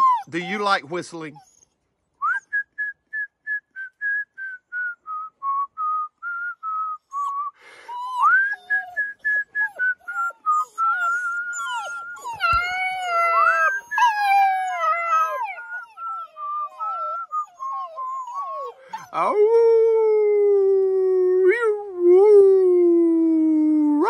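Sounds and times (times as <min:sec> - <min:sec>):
puppies howling and whimpering: 0:00.0 - 0:00.8, 0:07.9 - 0:20.9.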